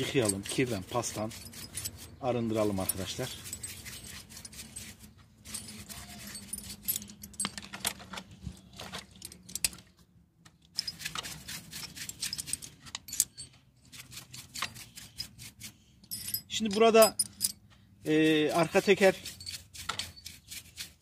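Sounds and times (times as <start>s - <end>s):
brushing: 0.0s - 7.5s, 10.8s - 17.1s, 18.0s - 21.0s
metal axle clinking and rattling: 0.0s - 8.3s, 9.0s - 10.0s, 10.7s - 20.5s.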